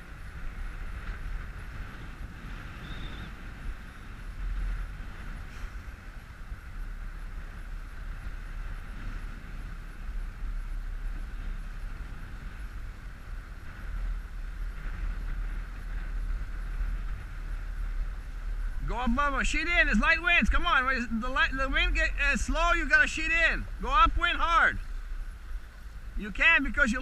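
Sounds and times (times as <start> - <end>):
wind noise on microphone: 0.0 - 27.0.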